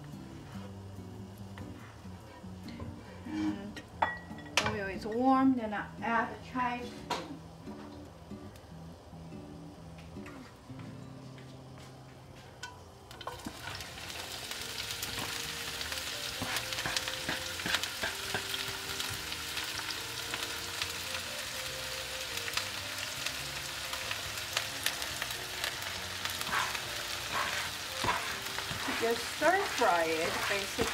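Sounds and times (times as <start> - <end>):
chives sizzling in hot oil: 12.6 - 30.9.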